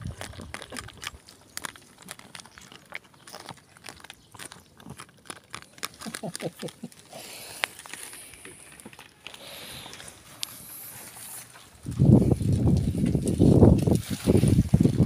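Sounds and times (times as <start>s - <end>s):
cat chewing and crunching: 0.0s - 15.0s
soft rustling: 7.6s - 15.0s.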